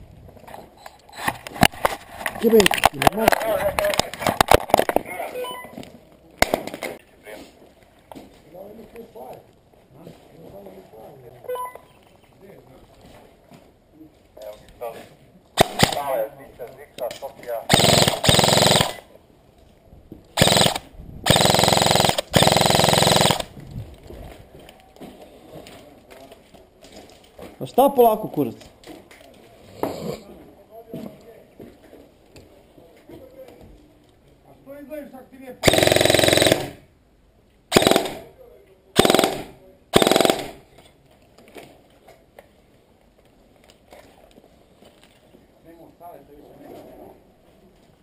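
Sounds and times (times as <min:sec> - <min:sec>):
airsoft rifle firing bursts: 0:15.6 - 0:16.1, 0:17.7 - 0:19.1, 0:20.4 - 0:23.5, 0:35.6 - 0:36.8, 0:37.7 - 0:38.3, 0:39.0 - 0:40.6.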